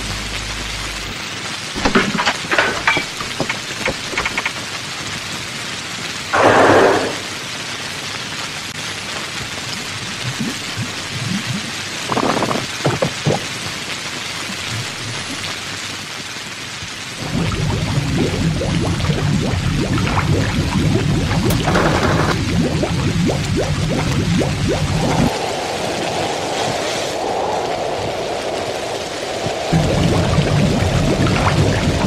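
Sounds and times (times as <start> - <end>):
heavy rain hissing: 0.0 - 32.0
rushing surges of rain: 0.0 - 32.0
short cracks: 1.8 - 4.8.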